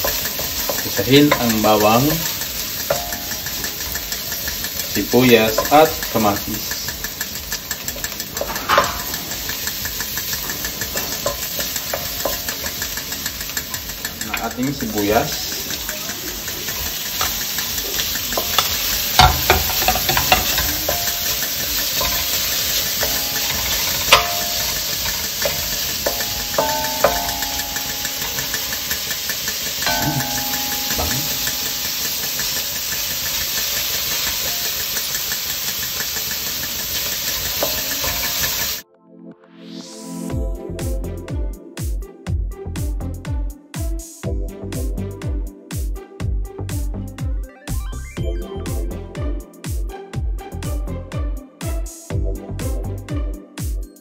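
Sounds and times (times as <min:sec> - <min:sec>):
garlic sizzling in hot oil: 0:00.0 - 0:38.8
wooden spatula scraping a wok: 0:00.0 - 0:38.8
wooden spoon stirring: 0:00.0 - 0:38.8.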